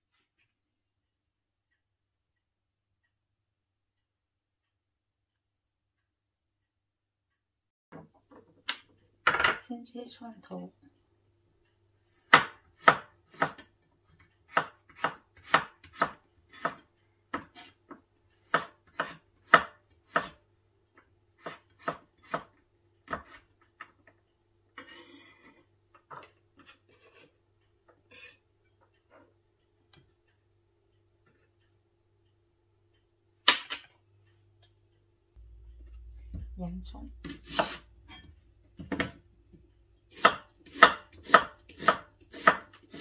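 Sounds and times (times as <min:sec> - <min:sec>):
knife chopping on wooden board: 0:12.3 - 0:13.7, 0:14.5 - 0:20.4, 0:21.4 - 0:23.5, 0:37.2 - 0:37.9, 0:40.1 - 0:43.0
knife scraping board: 0:17.4 - 0:17.8, 0:26.9 - 0:27.4, 0:28.1 - 0:28.4, 0:37.2 - 0:38.3, 0:40.1 - 0:43.0.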